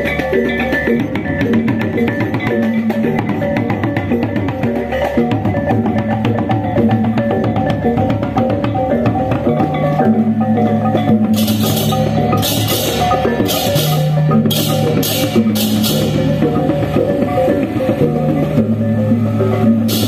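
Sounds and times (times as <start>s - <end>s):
drums: 0.0s - 20.0s
gamelan metallophones: 0.0s - 20.0s
cymbals clashing: 9.4s - 20.0s.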